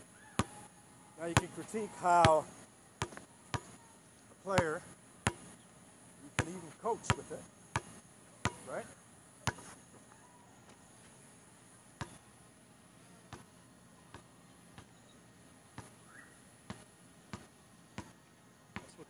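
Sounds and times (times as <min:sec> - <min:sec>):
basketball bouncing on hard court: 0:03.0 - 0:03.8, 0:04.6 - 0:05.5, 0:06.4 - 0:08.7, 0:09.4 - 0:09.7, 0:12.0 - 0:12.2, 0:18.8 - 0:19.0.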